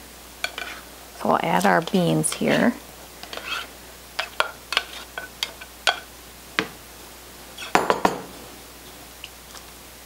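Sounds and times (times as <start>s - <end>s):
spatula scraping ceramic bowl: 0.5s - 0.8s, 3.3s - 6.0s.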